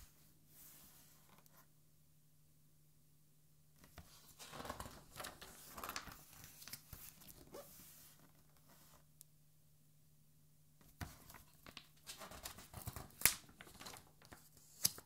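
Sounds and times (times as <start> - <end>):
page turning: 3.8 - 8.4, 11.0 - 15.0.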